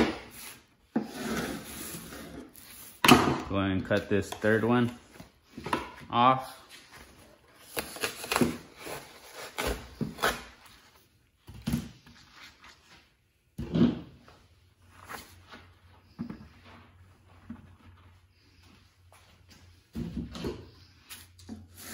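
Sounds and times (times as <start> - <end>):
board scraping and tearing: 0.0 - 3.1
knife cutting duct board: 7.6 - 10.7.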